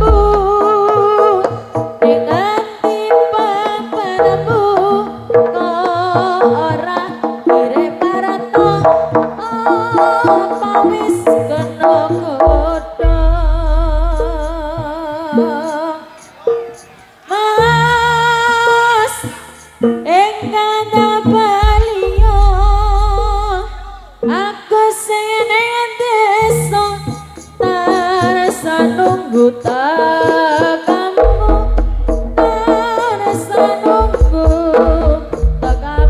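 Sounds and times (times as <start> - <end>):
deep low drum strokes: 0.0 - 0.6, 12.4 - 15.0, 21.6 - 24.2, 31.2 - 33.0, 34.0 - 36.0
drumming: 0.0 - 15.0, 21.4 - 24.2, 31.2 - 36.0
wavering sung melody: 7.6 - 24.6, 31.1 - 35.2.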